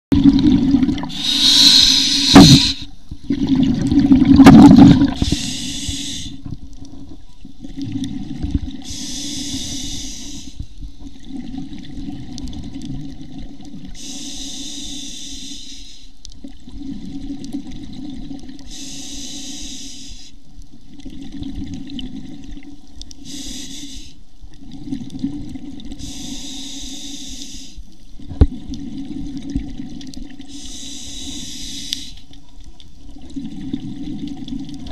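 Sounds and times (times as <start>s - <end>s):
exhaled bubbles underwater: 0.1s - 14.2s, 16.4s - 18.9s, 20.8s - 23.0s, 24.4s - 26.6s, 28.2s - 34.9s
regulator hissing inhale: 1.1s - 2.9s, 5.2s - 6.5s, 8.8s - 10.8s, 14.0s - 16.2s, 18.6s - 20.4s, 23.2s - 24.2s, 26.0s - 27.9s, 30.4s - 32.4s.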